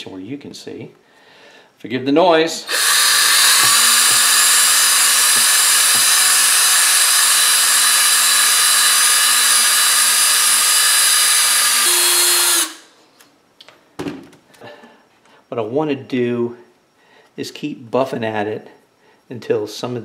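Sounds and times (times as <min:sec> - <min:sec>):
electric drill whine with hiss: 0:02.6 - 0:13.0.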